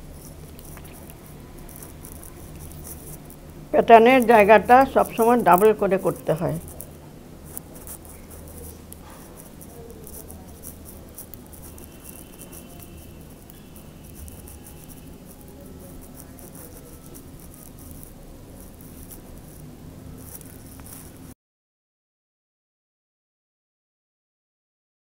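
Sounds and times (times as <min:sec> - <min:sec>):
steady low hum: 0:00.0 - 0:21.4
metal knitting needles clicking: 0:00.1 - 0:19.6.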